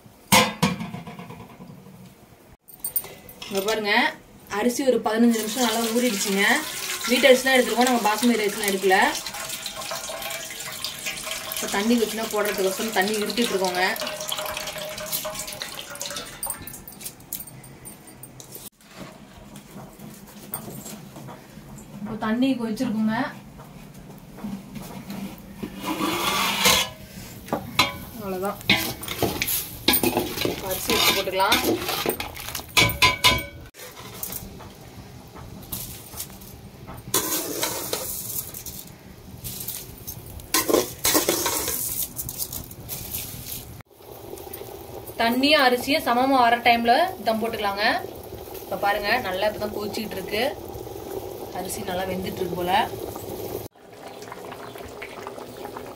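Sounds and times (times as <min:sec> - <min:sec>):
water splashing into steel bucket: 0:05.3 - 0:16.8
metal ladle scraping steel bowl: 0:25.6 - 0:27.2, 0:28.7 - 0:32.4.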